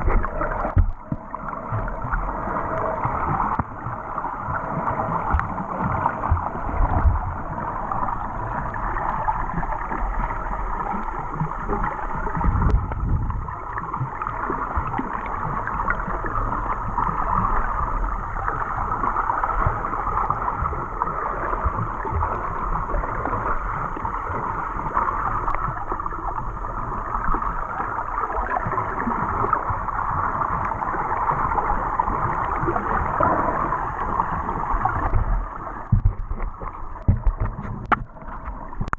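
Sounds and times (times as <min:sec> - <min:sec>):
low underwater thumps: 0:00.0 - 0:08.5, 0:12.4 - 0:14.1, 0:34.9 - 0:38.9
underwater rushing and gurgling: 0:00.0 - 0:38.9.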